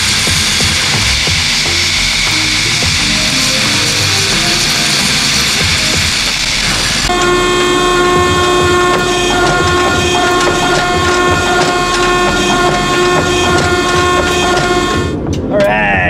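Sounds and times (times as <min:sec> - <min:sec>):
hydraulic hiss: 0:00.0 - 0:15.2
hydraulic press whine-drone: 0:00.0 - 0:15.2.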